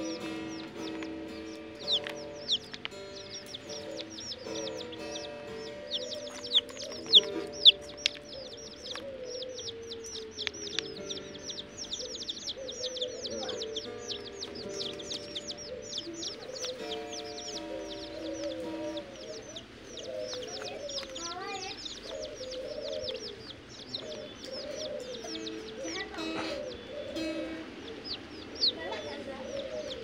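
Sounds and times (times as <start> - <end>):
background music held notes: 0.0 - 30.0
chicks peeping: 0.0 - 30.0.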